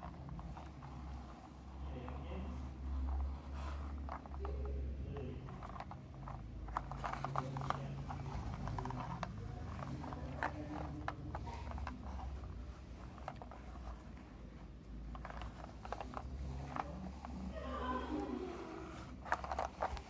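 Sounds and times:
toy truck clicking on carpet: 0:02.6 - 0:14.2, 0:15.0 - 0:17.3, 0:18.9 - 0:20.0.

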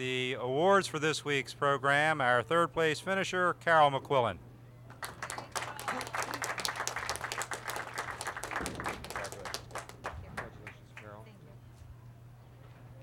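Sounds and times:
audience applauding: 0:04.9 - 0:11.1.

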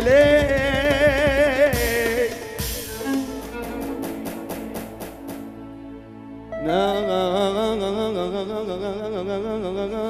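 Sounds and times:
man singing with vibrato: 0:00.0 - 0:03.3, 0:06.6 - 0:10.0
live band with lute: 0:00.0 - 0:05.9.

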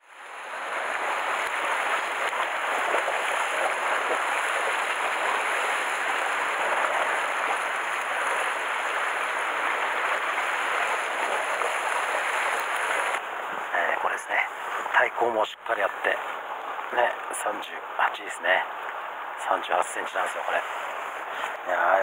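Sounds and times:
sea surf on rocky shore: 0:00.0 - 0:15.1.

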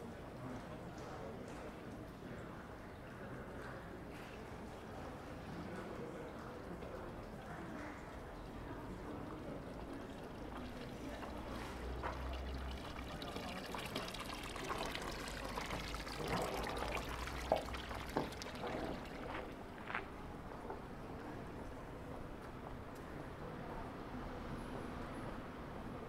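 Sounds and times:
water splashing into fountain basin: 0:05.6 - 0:20.2.

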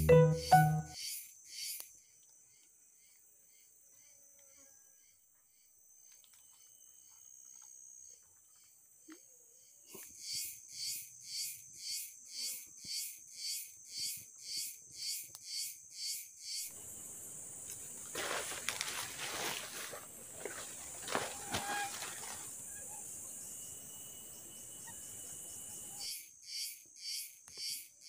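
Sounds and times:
rhythmic insect call: 0:10.2 - 0:28.0.

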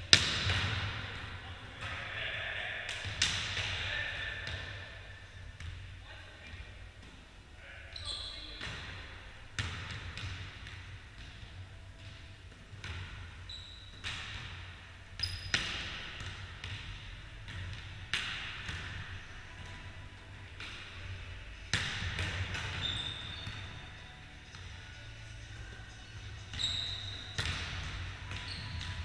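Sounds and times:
hands slapping volleyball: 0:02.9 - 0:03.8
sneakers squeaking on floor: 0:07.9 - 0:09.0, 0:12.9 - 0:14.4, 0:15.2 - 0:15.9, 0:22.2 - 0:25.0, 0:25.6 - 0:29.0.

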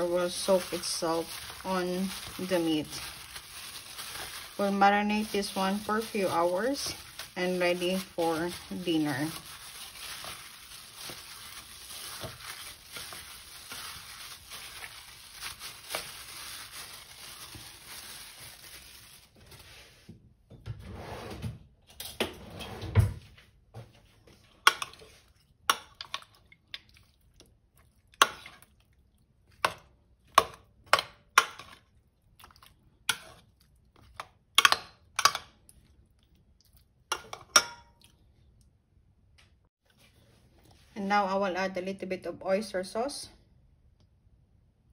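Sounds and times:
hand squishing meat in marinade: 0:00.0 - 0:19.7, 0:24.6 - 0:38.6.

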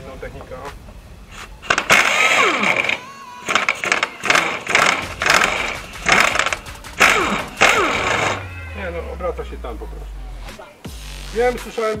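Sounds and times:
impact wrench hammering: 0:01.3 - 0:08.6.

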